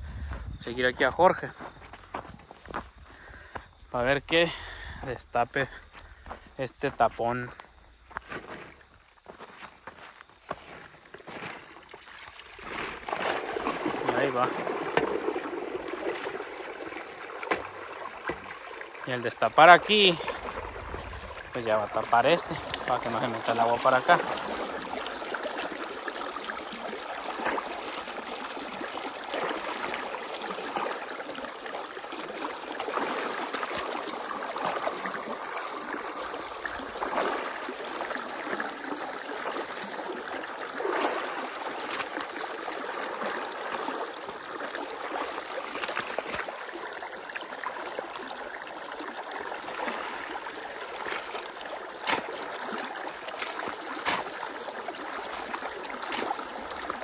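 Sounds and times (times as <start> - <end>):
water splashes: 0.0 - 57.0
irrigation water rushing and gurgling: 10.7 - 57.0
shovel digging mud in water: 11.2 - 16.6, 17.4 - 19.2, 19.8 - 26.2, 40.7 - 42.6, 45.0 - 46.6, 49.7 - 57.0.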